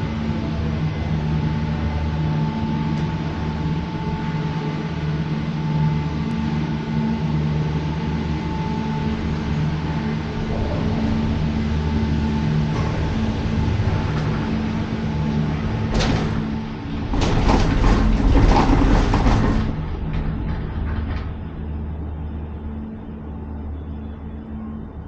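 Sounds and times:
cable car mechanical hum: 0:00.0 - 0:25.0
cable car rushing clattering passage: 0:06.3 - 0:25.0.

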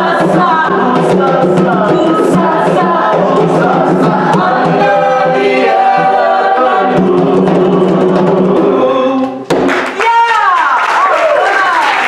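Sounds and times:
group of voices singing: 0:00.0 - 0:09.6
hand drumming: 0:00.0 - 0:09.8.

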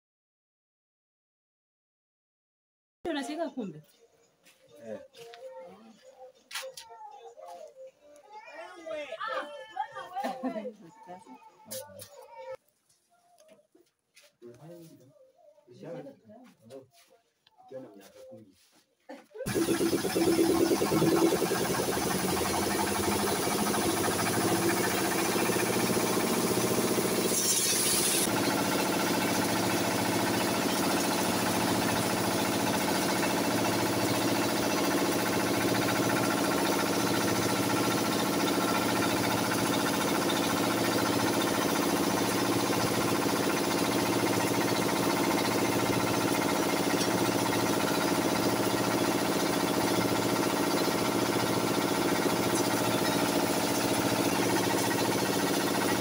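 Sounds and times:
grinding mill engine drone: 0:19.5 - 0:56.0.

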